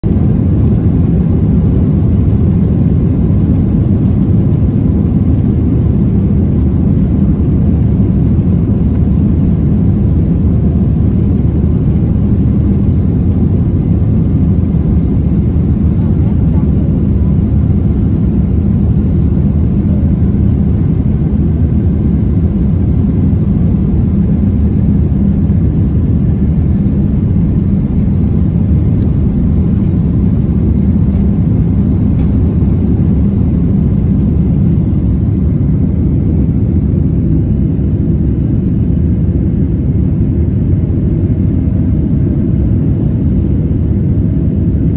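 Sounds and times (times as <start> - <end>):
jet engines roaring: 0.0 - 44.9
runway rumble: 23.9 - 36.4.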